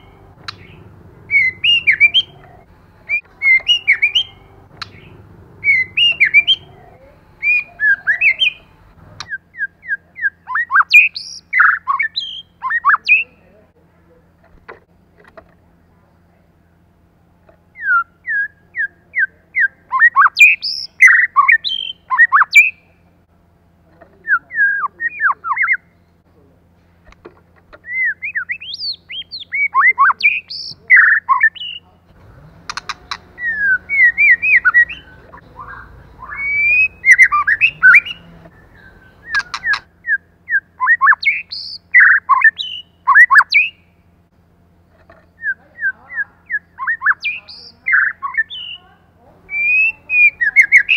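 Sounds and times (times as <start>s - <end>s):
sharp clicks: 0.0s - 0.8s, 4.0s - 5.1s, 32.5s - 33.3s, 39.2s - 39.9s
bird singing whistled notes: 0.0s - 6.7s, 7.4s - 13.4s, 17.8s - 22.8s, 27.8s - 31.8s, 32.7s - 44.0s, 45.2s - 48.9s, 49.5s - 50.9s.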